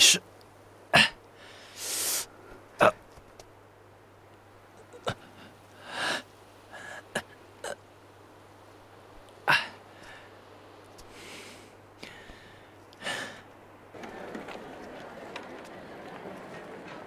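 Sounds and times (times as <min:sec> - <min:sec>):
man breathing hard: 0:01.4 - 0:02.4, 0:05.2 - 0:07.1, 0:09.5 - 0:10.4, 0:11.1 - 0:13.5
man gasping and grunting: 0:09.5 - 0:10.2.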